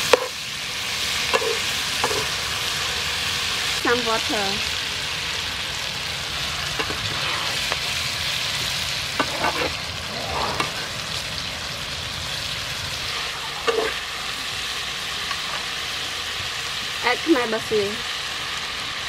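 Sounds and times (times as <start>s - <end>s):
eggs sizzling in a frying pan: 0.0s - 19.0s
metal spatula scraping a pan: 6.8s - 7.8s, 9.2s - 11.0s, 13.4s - 14.0s.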